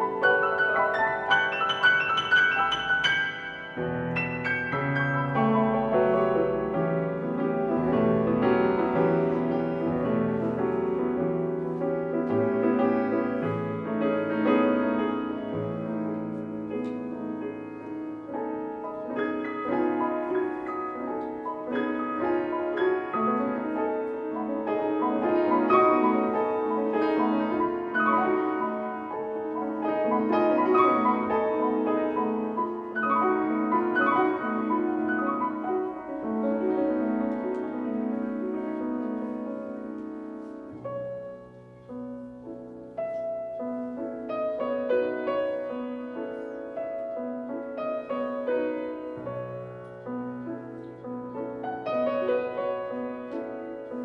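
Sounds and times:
solo classical piano: 0.0s - 54.0s.

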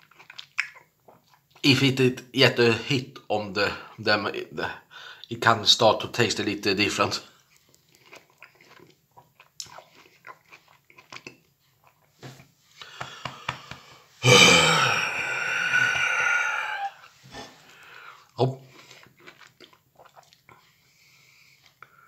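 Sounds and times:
chewing and wet mouth sounds: 0.0s - 2.0s, 7.0s - 13.9s, 15.0s - 22.0s
loud long burp: 14.2s - 17.6s.

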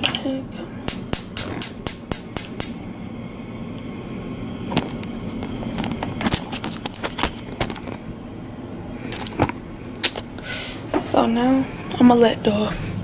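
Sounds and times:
scattered clicks and knocks: 0.9s - 2.8s
spark igniter clicking rapidly: 0.9s - 2.8s.

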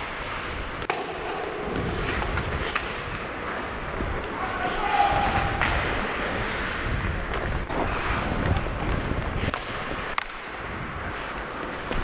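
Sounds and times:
wind buffeting microphone: 1.7s - 11.2s.

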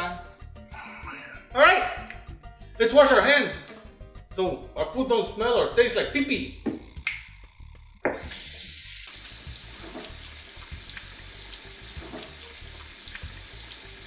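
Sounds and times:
water splashing off hands: 8.2s - 13.8s
faucet running into steel sink: 8.2s - 14.0s.

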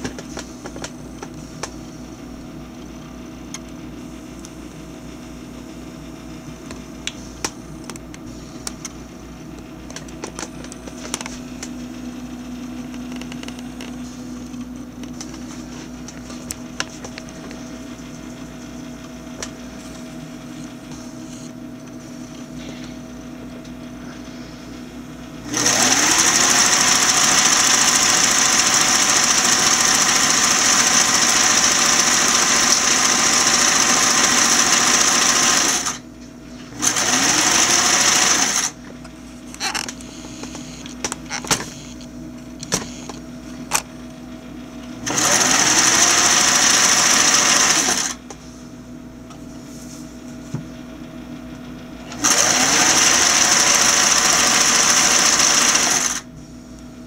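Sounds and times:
motor whine: 0.0s - 57.0s
clicks and handling noises: 9.6s - 11.8s
sewing machine running: 25.4s - 36.0s, 36.7s - 38.8s, 45.0s - 48.2s, 52.0s - 56.3s.

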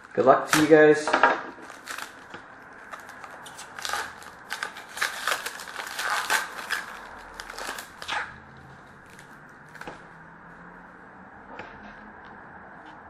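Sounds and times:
wrapper tearing and crinkling: 0.0s - 0.8s, 1.5s - 9.8s.

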